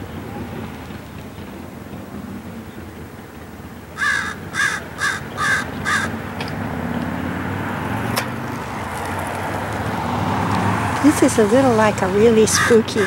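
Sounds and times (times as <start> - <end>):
raven cawing: 4.0 - 6.3, 12.4 - 13.0.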